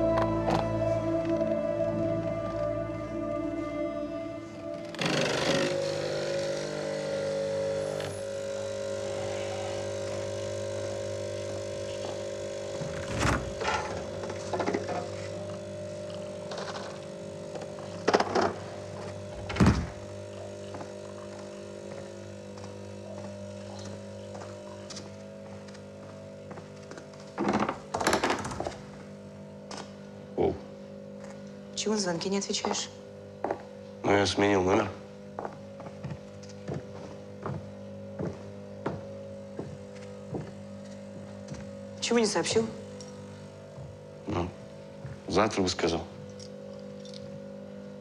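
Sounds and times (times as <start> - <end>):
background score of held tones: 0.0 - 11.6.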